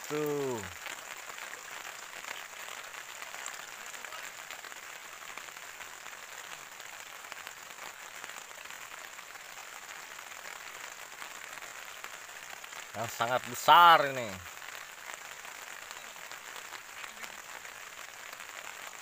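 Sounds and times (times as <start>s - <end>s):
steady rain: 0.0s - 19.0s.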